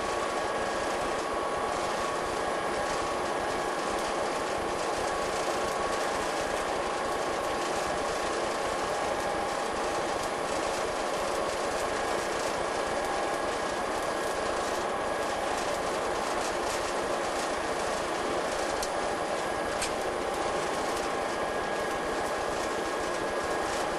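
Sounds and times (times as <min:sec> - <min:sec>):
faint ticks from the track: 0:18.7 - 0:19.0.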